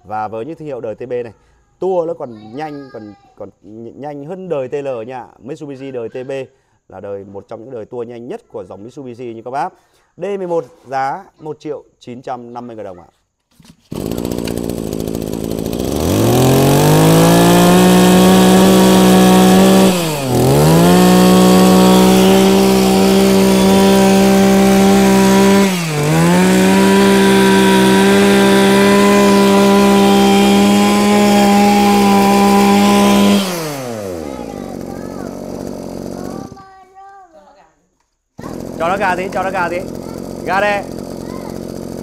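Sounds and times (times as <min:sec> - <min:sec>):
brush cutter engine revving: 0:13.7 - 0:36.7, 0:38.4 - 0:42.0.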